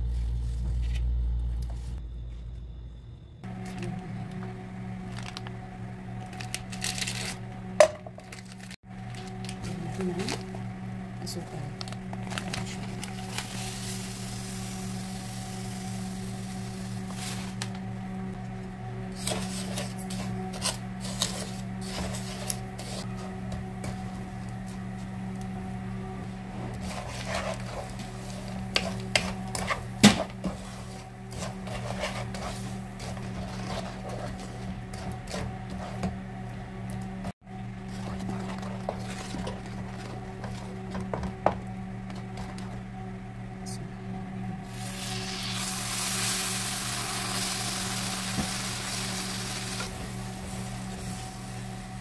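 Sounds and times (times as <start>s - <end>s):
steady low hum: 0.0s - 52.0s
liquid sizzling in hot pan: 13.4s - 17.5s, 44.7s - 52.0s
wooden spatula scraping a wok: 19.2s - 24.8s, 26.3s - 36.2s, 37.9s - 40.8s
wooden spoon stirring: 26.3s - 36.2s, 37.8s - 41.3s.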